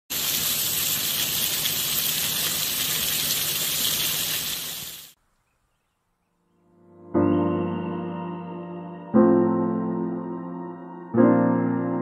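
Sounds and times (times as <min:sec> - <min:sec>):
heavy rain falling: 0:00.1 - 0:05.2.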